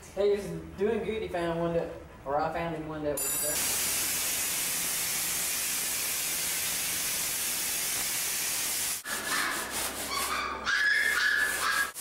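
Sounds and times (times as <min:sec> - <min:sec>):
sprayer hissing foam: 0:03.6 - 0:09.0.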